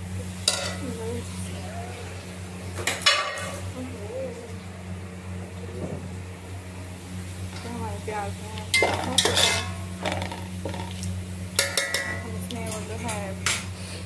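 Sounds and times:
low steady hum: 0.0s - 14.0s
onions frying in oil: 0.0s - 14.0s
metal spatula scraping a pot: 8.8s - 11.0s.

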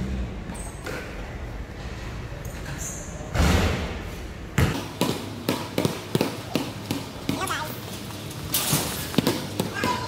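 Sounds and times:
basketball hitting hoop: 3.3s - 7.5s
ball bouncing on court floor: 4.6s - 7.8s, 8.8s - 10.0s.

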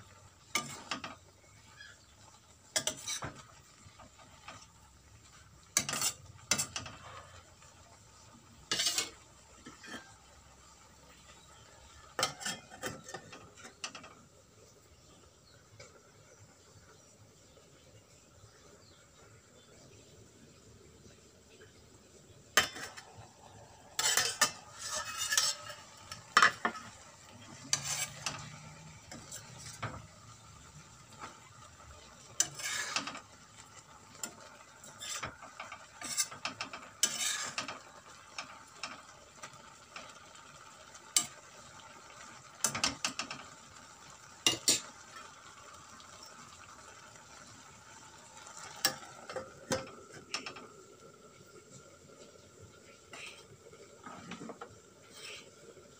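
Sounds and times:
faint frying sizzle: 0.0s - 55.9s
metal spatula scraping pan: 0.4s - 7.8s, 8.6s - 10.3s, 11.2s - 14.2s, 22.6s - 23.2s, 23.8s - 30.4s, 32.2s - 40.2s, 41.1s - 41.4s, 44.4s - 45.0s, 48.5s - 50.7s, 53.1s - 55.6s
metal lid clattering on pan: 0.5s - 1.2s, 5.8s - 7.2s, 12.2s - 14.2s, 24.0s - 27.0s, 35.0s - 39.1s, 44.4s - 44.9s.

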